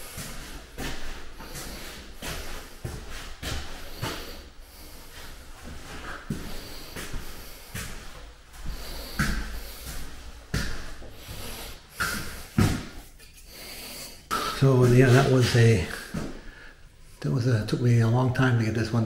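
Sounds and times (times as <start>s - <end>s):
footsteps on tile floor: 0.0s - 16.4s
breathing close to microphone: 0.0s - 17.2s.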